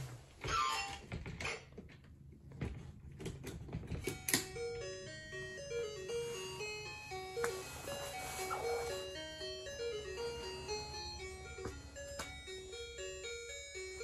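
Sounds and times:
toy beeping electronic tune: 4.2s - 14.0s
falling chime-like notes: 4.3s - 14.0s.

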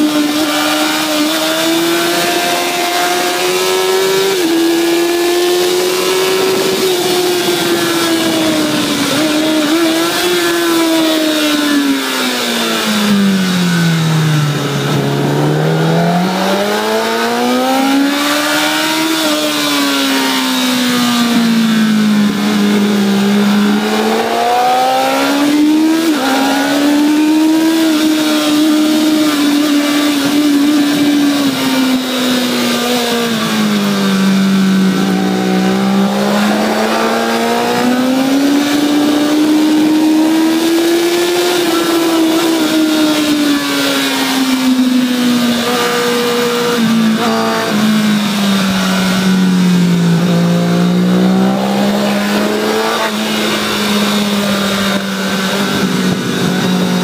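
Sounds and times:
motorcycle engine revving: 0.0s - 57.0s
wind rush: 4.3s - 10.7s, 51.2s - 57.0s.

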